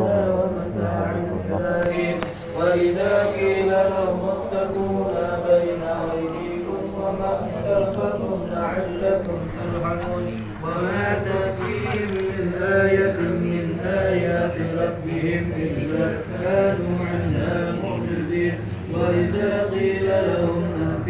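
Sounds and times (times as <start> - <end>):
men chanting prayers in unison: 0.0 - 21.0.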